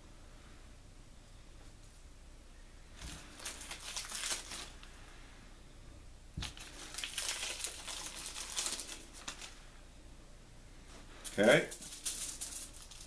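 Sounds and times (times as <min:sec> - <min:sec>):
plastic wrappers crinkling: 0:03.0 - 0:04.9, 0:06.4 - 0:09.6, 0:11.2 - 0:13.0.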